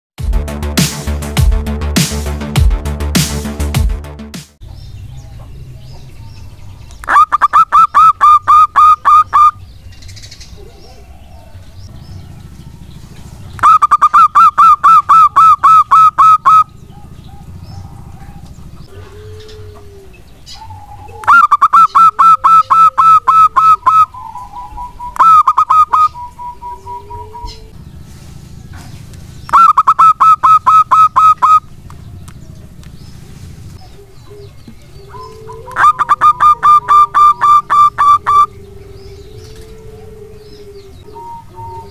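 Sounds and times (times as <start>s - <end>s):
dove cooing: 6.9s - 27.8s, 29.4s - 41.9s.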